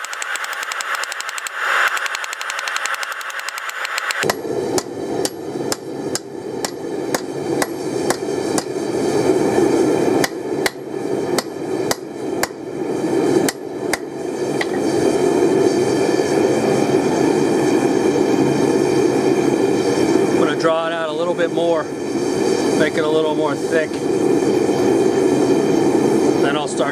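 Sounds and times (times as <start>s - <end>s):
gas forge burner roar: 0.0s - 26.9s
hammer striking steel on anvil: 4.2s - 8.7s, 10.2s - 10.8s, 11.4s - 12.6s.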